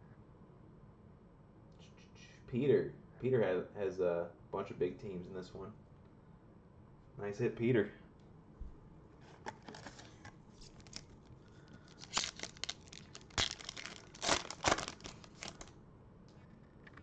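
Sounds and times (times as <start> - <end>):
foil wrapper tearing and crinkling: 9.5 - 15.7.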